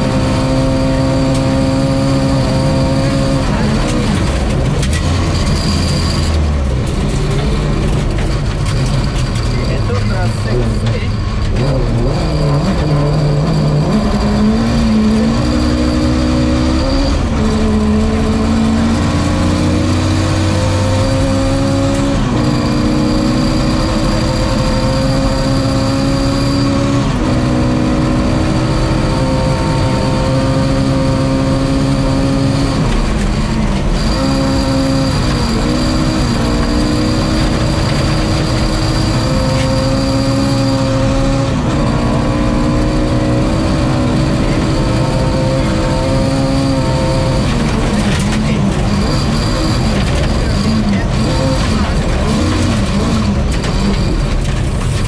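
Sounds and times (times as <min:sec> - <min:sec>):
rally engine accelerating: 0:00.0 - 0:55.0
road noise on gravel: 0:03.2 - 0:15.7, 0:44.1 - 0:55.0.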